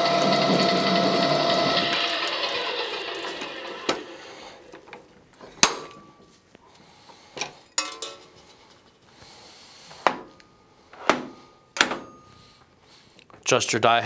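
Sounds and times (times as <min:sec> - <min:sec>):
metal clanks and knocks: 0:05.4 - 0:06.2, 0:07.4 - 0:08.6, 0:11.0 - 0:12.3.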